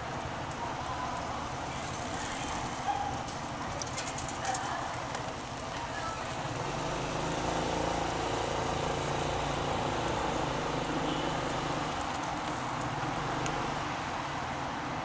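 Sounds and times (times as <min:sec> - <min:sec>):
road and wind noise: 0:00.0 - 0:15.0.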